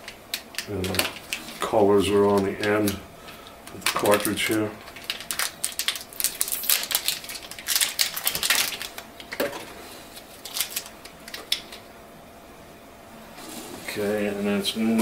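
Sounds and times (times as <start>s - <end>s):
plastic wrapper crinkling: 0.0s - 9.5s, 10.1s - 11.8s.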